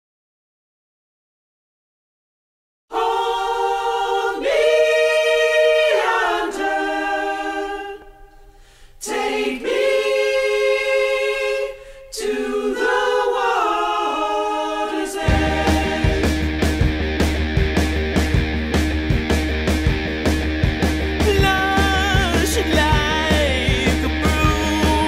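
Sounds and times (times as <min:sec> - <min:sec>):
choir singing in harmony: 0:02.9 - 0:17.5, 0:21.1 - 0:25.0
distorted electric guitar rock: 0:15.3 - 0:25.0.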